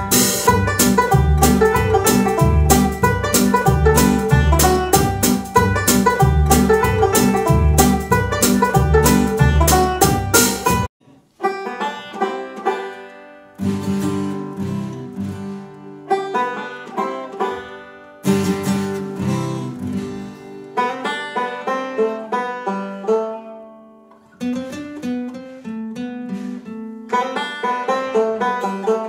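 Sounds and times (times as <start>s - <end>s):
drum hits: 0.0s - 10.9s
upright bass: 0.0s - 10.9s
acoustic guitar: 0.0s - 29.0s
banjo: 0.0s - 29.0s.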